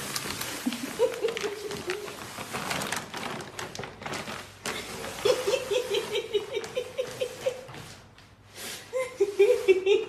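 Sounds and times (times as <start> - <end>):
plastic bag rustling: 0.0 - 10.0
person laughing: 0.6 - 2.1, 5.2 - 7.8, 8.9 - 10.0
bag dragged over wooden floor: 1.6 - 6.3.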